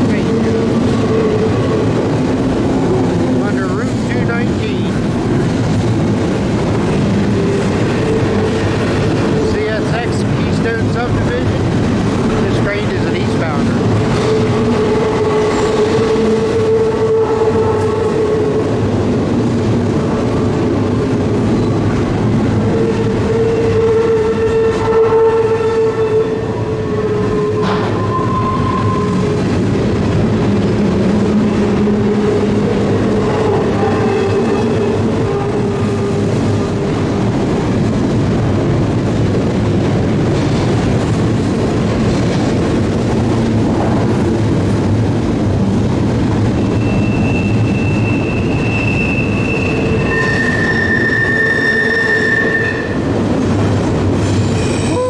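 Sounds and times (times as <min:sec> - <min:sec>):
train wheels rumbling on rail: 0:00.0 - 0:55.0
wheel squeal: 0:46.6 - 0:53.0.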